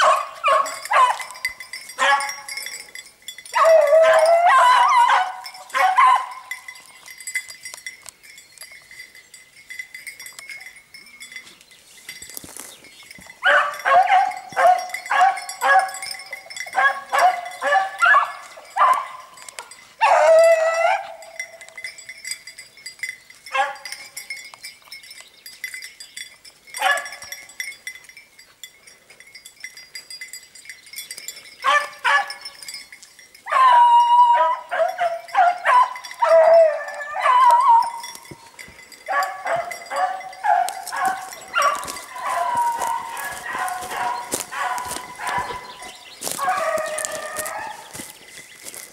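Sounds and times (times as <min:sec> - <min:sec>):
dogs baying: 0:00.0 - 0:06.8, 0:13.4 - 0:21.6, 0:26.8 - 0:27.3, 0:31.6 - 0:32.8, 0:33.4 - 0:48.9.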